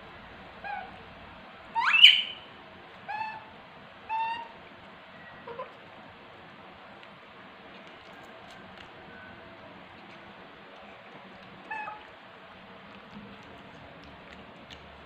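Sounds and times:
baby monkey crying: 4.1s - 4.6s, 5.4s - 5.8s, 11.6s - 12.1s.

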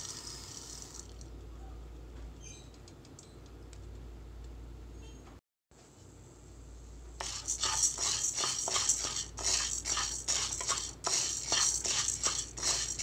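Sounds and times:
lentils rattling in pan: 7.2s - 13.0s.

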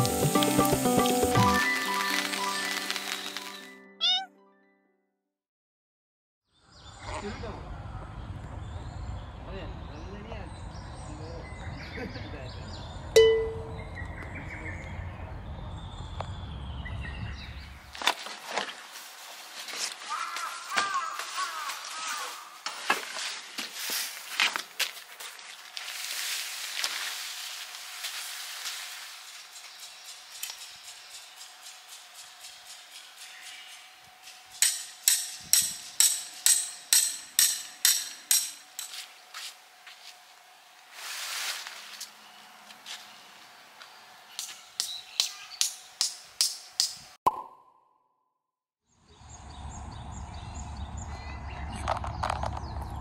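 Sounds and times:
birds chirping: 6.5s - 18.0s, 42.0s - 46.4s, 49.1s - 53.0s
hammer striking metal stake: 13.2s - 13.8s, 34.6s - 39.0s, 44.4s - 47.0s.

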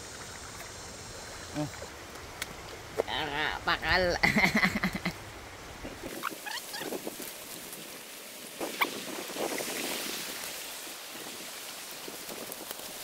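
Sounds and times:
footsteps rustling through grass: 6.0s - 13.0s.

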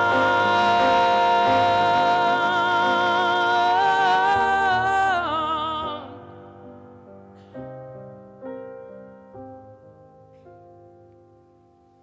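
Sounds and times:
person singing with vibrato: 0.0s - 6.9s
piano accompaniment: 0.0s - 12.0s.

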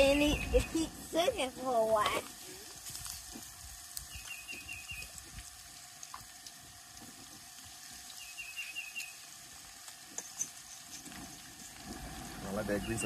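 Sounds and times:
bird chirping: 0.0s - 0.8s, 4.1s - 5.2s, 8.2s - 9.2s, 12.6s - 13.0s
fish sizzling in hot oil: 0.0s - 13.0s.

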